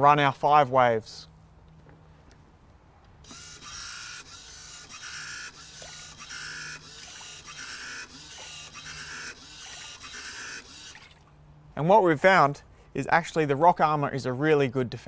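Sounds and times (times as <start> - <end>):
wave-maker motor whirring: 3.2 - 11.2.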